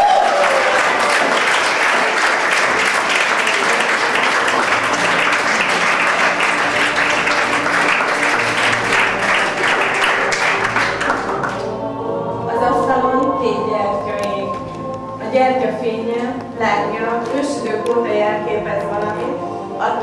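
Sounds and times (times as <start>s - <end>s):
crowd applauding: 0.0s - 11.8s
faint music: 0.0s - 20.0s.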